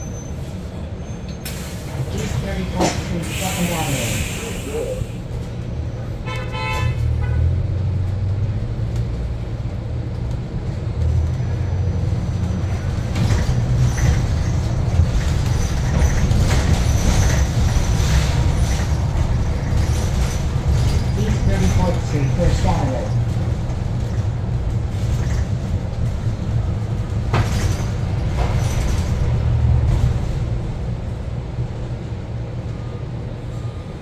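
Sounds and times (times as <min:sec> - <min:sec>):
road rumble: 0:00.0 - 0:34.0
bus horn toot: 0:06.2 - 0:07.6.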